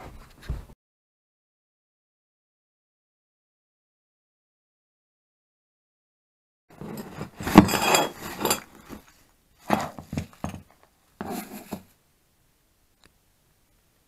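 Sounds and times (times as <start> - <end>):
metal parts clinking on wood: 6.8 - 9.0.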